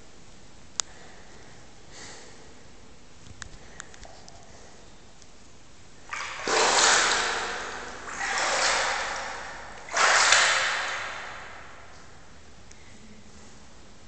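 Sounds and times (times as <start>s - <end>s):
water splashing and sloshing: 6.0s - 12.4s.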